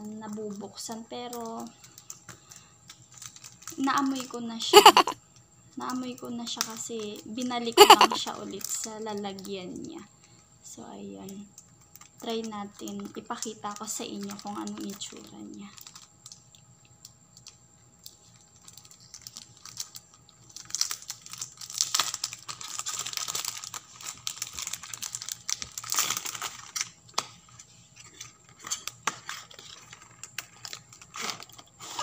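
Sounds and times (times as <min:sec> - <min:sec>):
plastic wrap crinkling: 0:02.9 - 0:04.2, 0:14.1 - 0:16.5, 0:18.0 - 0:31.8.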